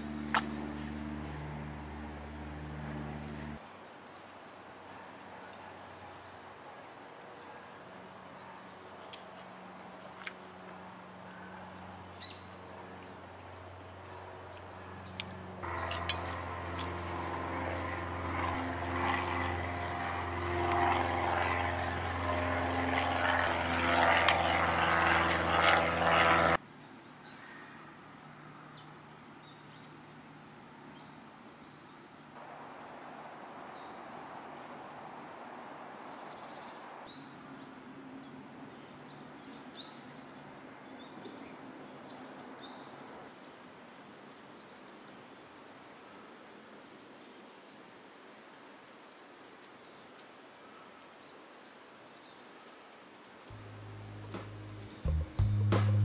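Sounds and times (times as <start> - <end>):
engine running: 0.0 - 3.6, 14.8 - 26.6, 53.5 - 56.0.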